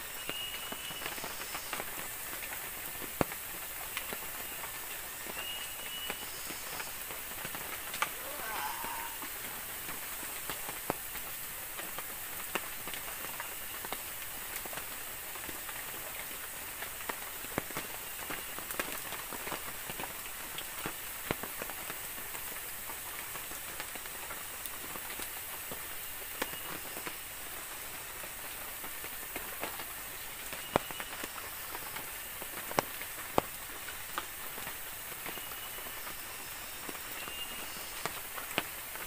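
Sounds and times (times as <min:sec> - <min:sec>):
rain on forest ground: 0:00.0 - 0:39.0
sharp ticks and pops: 0:29.3 - 0:35.5.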